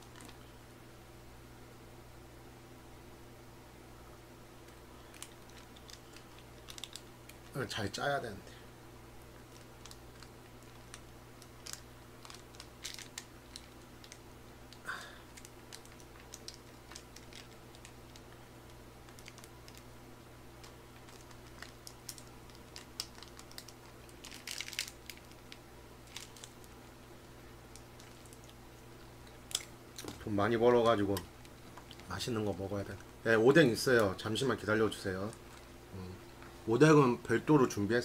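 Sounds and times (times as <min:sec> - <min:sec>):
plastic pouch crinkling: 0:00.0 - 0:00.4, 0:05.0 - 0:07.9, 0:09.3 - 0:19.9, 0:20.6 - 0:33.3.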